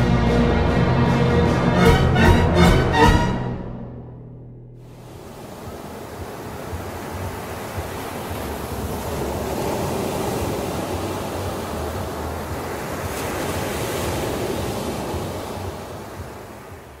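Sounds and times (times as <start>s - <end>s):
low hum: 0.0s - 6.0s
steady rushing noise: 4.8s - 17.0s.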